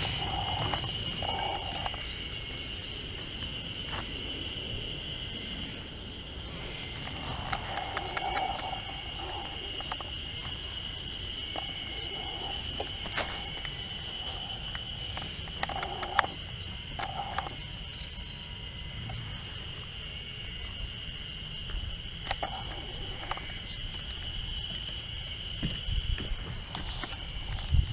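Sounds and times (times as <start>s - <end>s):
high-pitched insect drone: 0.0s - 27.9s
low outdoor rumble: 0.0s - 27.9s
sharp clicks: 7.2s - 10.1s, 14.7s - 19.2s, 22.2s - 23.5s.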